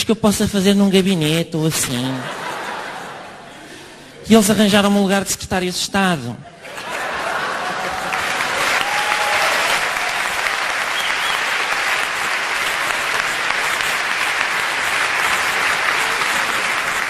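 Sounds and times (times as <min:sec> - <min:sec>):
audience applauding: 0:06.7 - 0:17.0.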